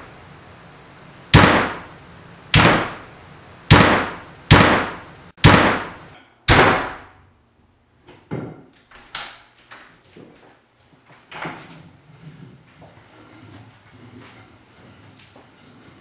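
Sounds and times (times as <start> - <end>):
loud heavy impacts: 1.3 - 7.2.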